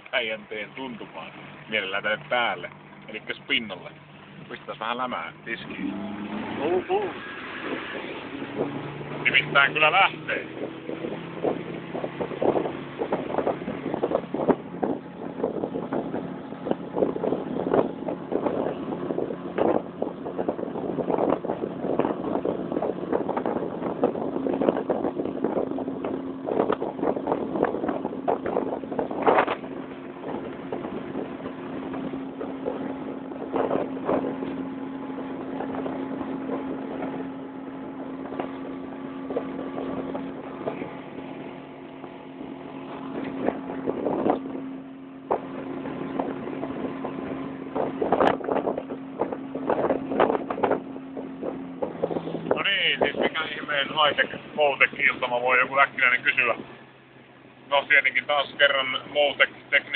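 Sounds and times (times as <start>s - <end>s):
outboard motor at full throttle: 0.0s - 59.9s
boat hull knocks: 38.2s - 40.9s.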